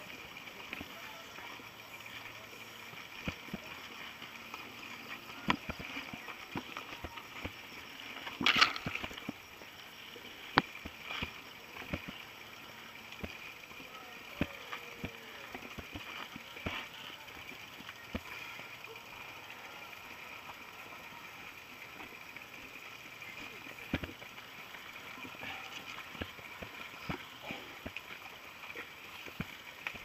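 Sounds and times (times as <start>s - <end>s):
bike clicks and rattles: 3.1s - 12.3s.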